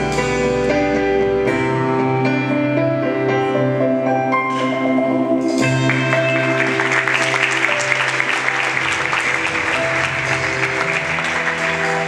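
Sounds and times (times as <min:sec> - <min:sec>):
instrumental music with sustained notes: 0:00.0 - 0:12.0
applause: 0:05.7 - 0:12.0.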